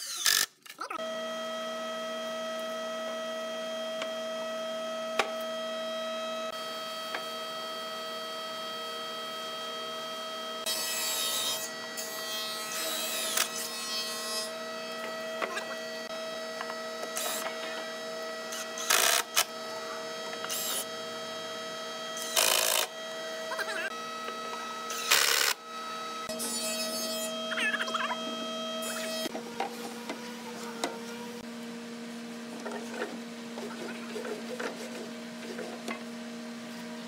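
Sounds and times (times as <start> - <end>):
cordless drill driving screws: 0.0 - 0.5, 18.5 - 19.5
steady background hum: 4.0 - 37.0.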